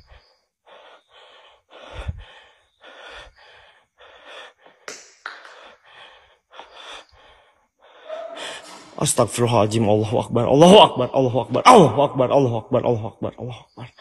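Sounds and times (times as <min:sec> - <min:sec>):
person breathing heavily: 0:00.0 - 0:09.0.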